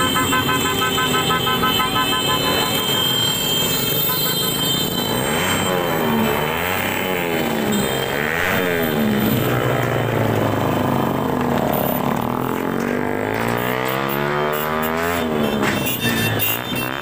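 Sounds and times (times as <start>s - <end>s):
cars driving past: 0.0s - 17.0s
motorcycles driving past: 0.0s - 17.0s.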